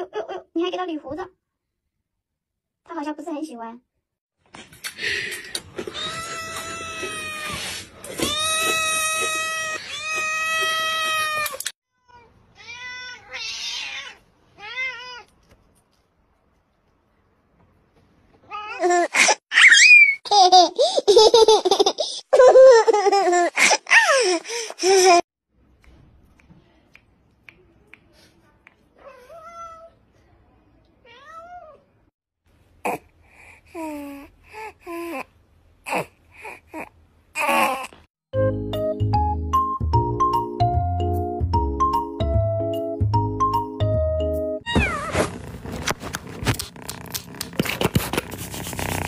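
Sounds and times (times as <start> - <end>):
cat meowing: 8.2 - 15.3.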